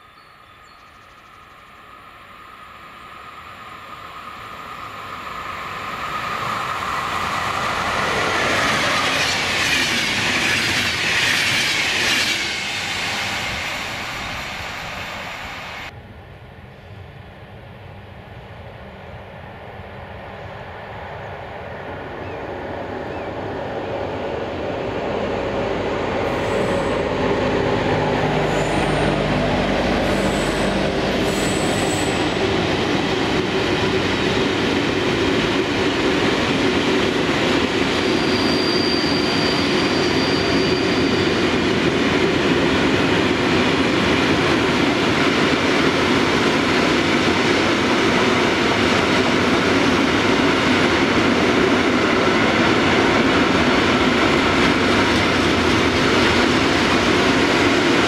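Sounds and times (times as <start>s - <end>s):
freight train passing: 0.0s - 58.0s
wagons rumbling on rails: 4.3s - 15.9s, 22.2s - 58.0s
locomotive steady tones: 22.8s - 47.6s
high wheel squeal: 26.2s - 32.9s, 37.8s - 41.7s.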